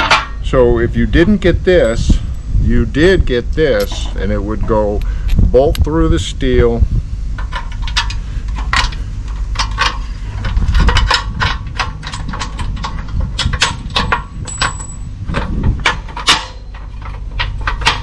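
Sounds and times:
steady low rumble: 0:00.0 - 0:18.0
wrench clinking on metal bolt: 0:10.9 - 0:18.0.

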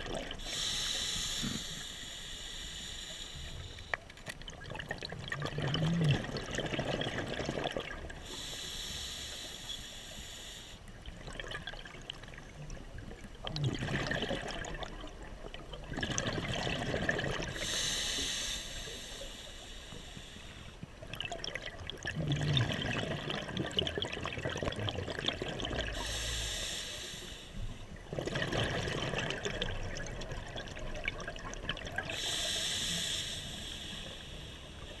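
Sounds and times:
exhaled bubbles gushing: 0:00.0 - 0:00.6, 0:04.4 - 0:08.2, 0:11.2 - 0:17.6, 0:21.1 - 0:26.0, 0:28.0 - 0:32.2
regulator hissing inhale: 0:00.4 - 0:04.0, 0:08.2 - 0:10.8, 0:17.5 - 0:20.8, 0:25.9 - 0:27.9, 0:32.1 - 0:35.0.

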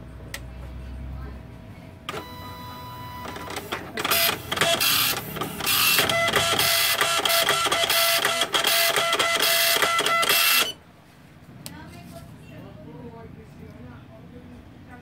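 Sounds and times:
dot-matrix printer buzzing: 0:02.1 - 0:10.8.

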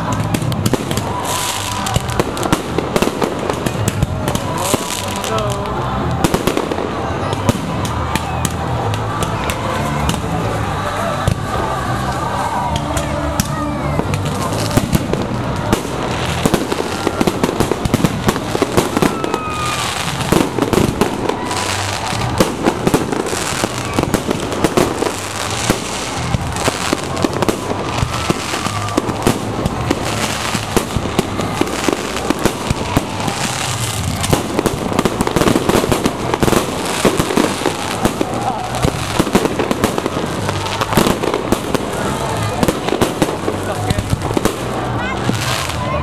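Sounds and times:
fireworks bursting: 0:00.0 - 0:46.0.

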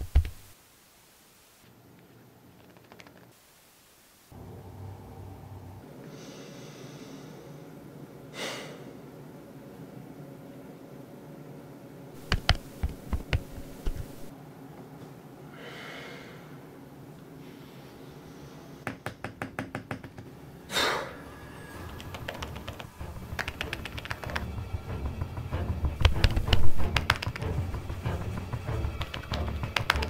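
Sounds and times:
typing on keyboard case: 0:00.0 - 0:00.4, 0:12.2 - 0:14.3, 0:21.9 - 0:24.5, 0:26.0 - 0:27.4, 0:29.0 - 0:30.0
sharp taps: 0:00.0 - 0:00.5, 0:12.2 - 0:14.3, 0:26.0 - 0:27.6, 0:28.8 - 0:30.0
rapid clicks: 0:12.2 - 0:14.3, 0:21.9 - 0:30.0.

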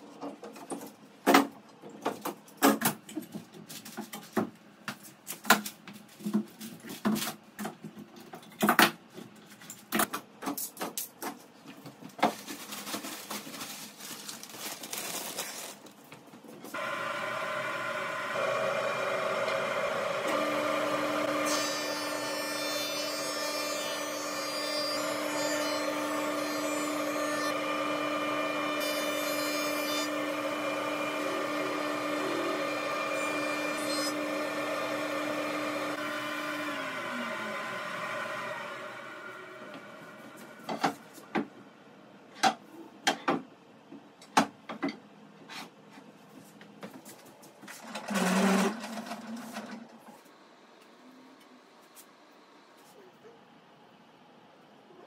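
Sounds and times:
board cutting noise: 0:16.7 - 0:41.1
machine spinning down: 0:16.8 - 0:21.3, 0:34.2 - 0:40.6
jointer-planer running: 0:16.8 - 0:40.8, 0:47.8 - 0:49.8.

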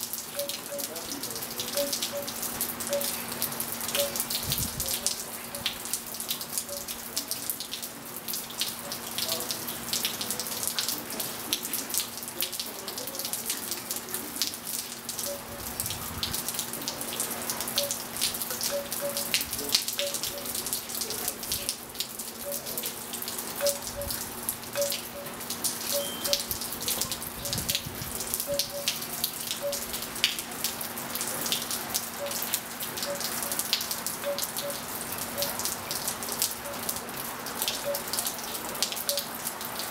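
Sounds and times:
rain pattering on pool and tiles: 0:00.0 - 0:39.9
water drop plinks: 0:00.3 - 0:07.8, 0:15.2 - 0:15.6, 0:17.7 - 0:20.6, 0:22.4 - 0:22.9, 0:23.6 - 0:24.2, 0:24.8 - 0:30.4, 0:32.2 - 0:35.6, 0:36.6 - 0:37.0, 0:37.7 - 0:38.3, 0:39.0 - 0:39.3.

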